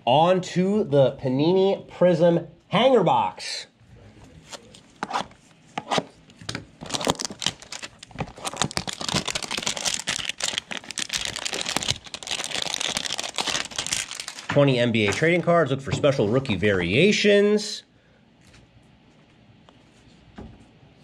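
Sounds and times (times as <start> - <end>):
packaging tearing and crinkling: 6.8 - 14.5.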